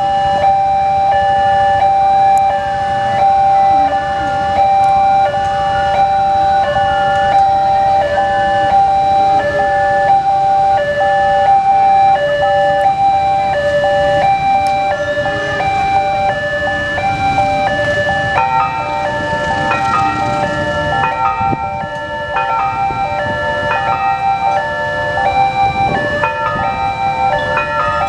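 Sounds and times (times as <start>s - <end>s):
level crossing two-tone alarm: 0.0s - 28.0s
low road traffic rumble: 0.0s - 28.0s.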